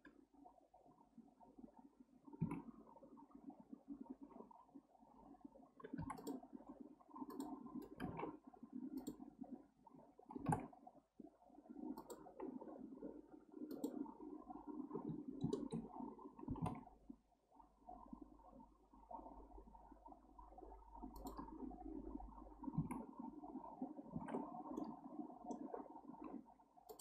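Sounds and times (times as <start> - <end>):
mouse and keyboard clicks: 5.8 - 6.4, 7.2 - 8.3, 9.0 - 9.2, 12.0 - 12.3, 13.7 - 14.0, 15.1 - 15.9, 21.1 - 21.6.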